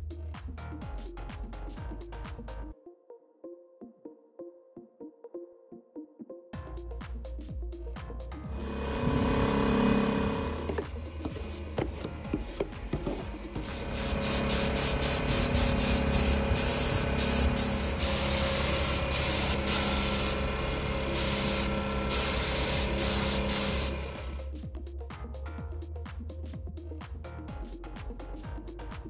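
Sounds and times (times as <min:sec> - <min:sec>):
spray gun hissing: 0:08.6 - 0:24.4.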